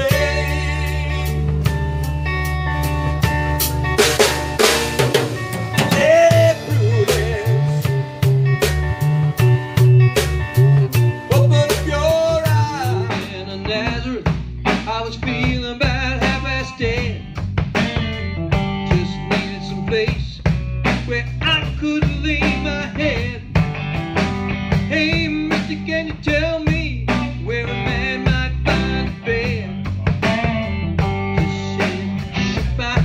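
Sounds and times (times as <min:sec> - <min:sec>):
bass line: 0:00.0 - 0:33.0
drum kit steady beat: 0:00.0 - 0:33.0
electric guitar: 0:00.0 - 0:33.0.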